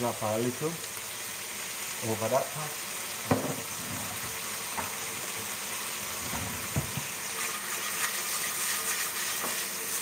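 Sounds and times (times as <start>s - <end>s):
shrimp sizzling in a frying pan: 0.0s - 10.0s
spatula stirring in a pan: 6.1s - 10.0s.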